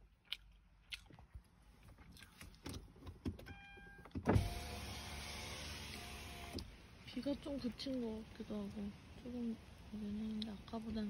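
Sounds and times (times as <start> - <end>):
electric window motor whine: 4.3 - 6.7
outside hiss: 4.3 - 11.0.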